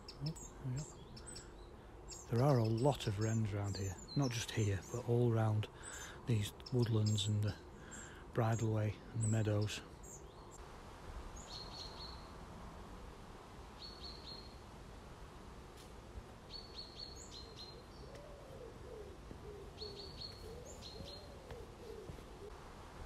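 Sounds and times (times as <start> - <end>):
faint low cooing: 0.0 - 1.6, 17.6 - 22.6.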